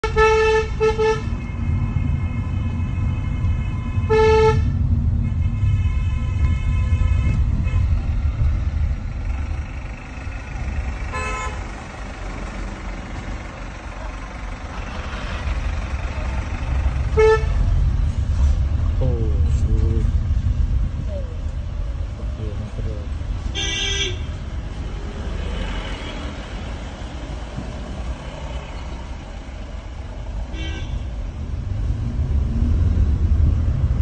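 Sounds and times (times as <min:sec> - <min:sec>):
car horn toots: 0:00.0 - 0:07.9, 0:11.1 - 0:11.6, 0:17.1 - 0:17.6, 0:23.5 - 0:24.3, 0:30.5 - 0:31.1
car engine and tyres rumbling: 0:00.0 - 0:34.0.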